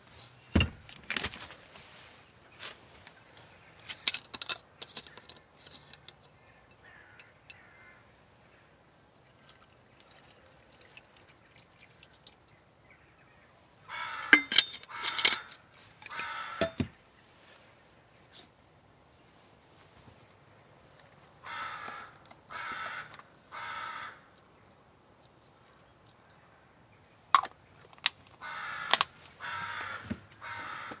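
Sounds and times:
clicks and knocks of handling: 0:03.8 - 0:07.6
crow cawing: 0:06.8 - 0:08.7, 0:13.9 - 0:16.8, 0:21.4 - 0:24.3, 0:28.4 - 0:31.0.

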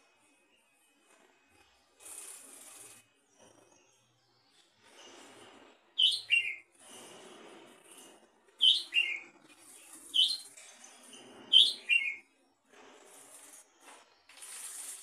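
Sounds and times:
bird calling: 0:06.0 - 0:06.6, 0:08.6 - 0:09.2, 0:10.2 - 0:10.4, 0:11.5 - 0:12.2.

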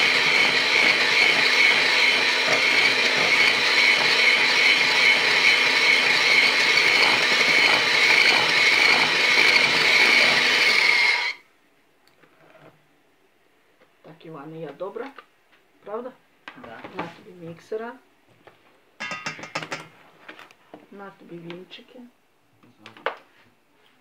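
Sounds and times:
electric hand mixer whisking: 0:00.0 - 0:11.4.

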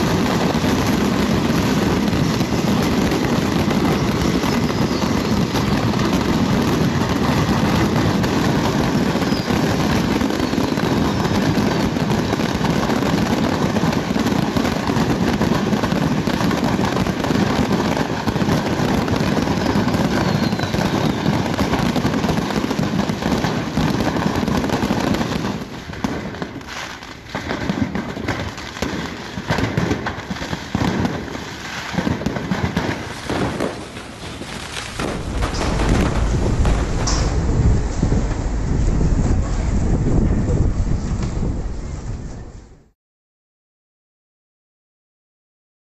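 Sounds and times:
fireworks bangs and crackling: 0:00.0 - 0:43.0
faint rocket whistles: 0:01.4 - 0:12.7, 0:19.0 - 0:22.7, 0:32.9 - 0:42.9.

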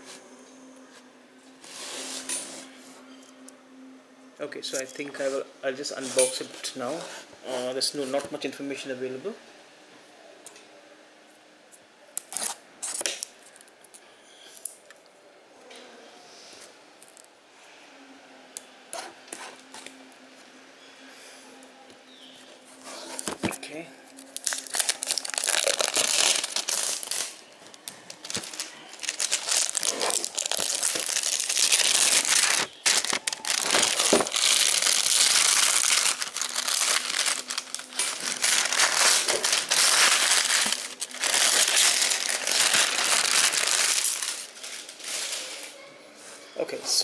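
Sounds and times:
plastic wrap crinkling and tearing: 0:24.1 - 0:45.8.

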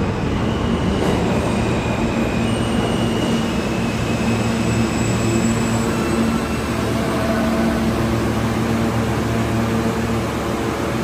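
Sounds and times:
subway train rumbling: 0:00.0 - 0:11.0.

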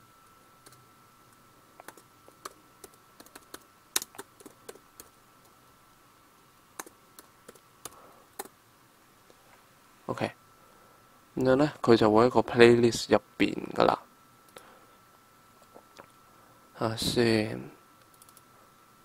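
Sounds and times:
faint steady whine: 0:00.0 - 0:19.0
keyboard typing: 0:01.8 - 0:05.2, 0:06.8 - 0:08.6, 0:18.1 - 0:18.5.

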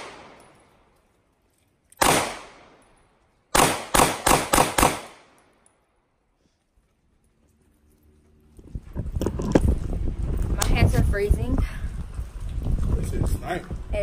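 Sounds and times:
pistol shots: 0:00.0 - 0:00.5, 0:02.0 - 0:02.8, 0:03.5 - 0:05.4.

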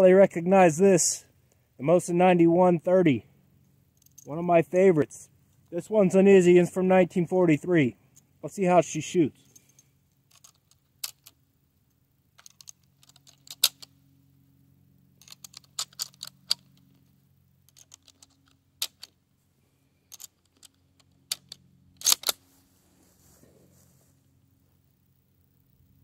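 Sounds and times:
rifle bolt clicking: 0:20.1 - 0:22.4.

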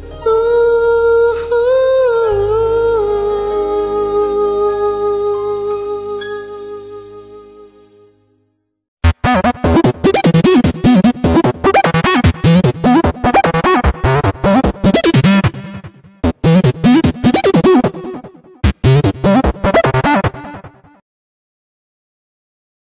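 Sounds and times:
music with fast choppy beat: 0:09.0 - 0:21.0.

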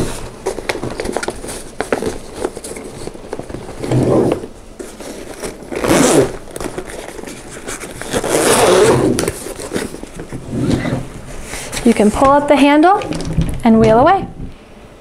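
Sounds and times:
zipper being pulled closed: 0:05.3 - 0:07.0, 0:07.6 - 0:09.8.

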